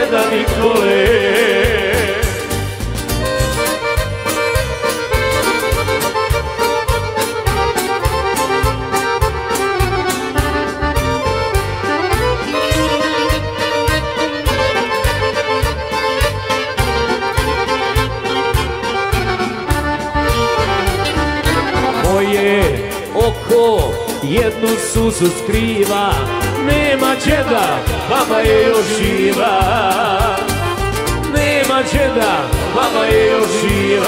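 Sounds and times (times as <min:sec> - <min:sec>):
violin with vibrato: 0:00.0 - 0:23.1, 0:25.8 - 0:34.0
bass: 0:00.0 - 0:34.0
keyboard melody: 0:00.0 - 0:34.0
drum beat: 0:16.8 - 0:34.0.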